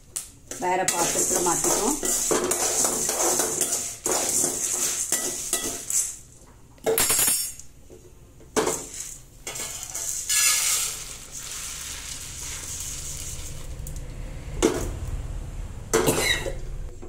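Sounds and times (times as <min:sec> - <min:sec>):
metal pan clanking: 0:00.9 - 0:06.2
lentils sliding onto plate: 0:08.7 - 0:14.1.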